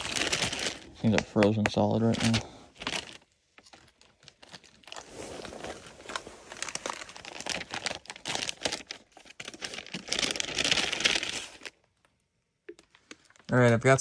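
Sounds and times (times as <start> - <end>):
plastic bag crinkling: 0.0 - 12.1.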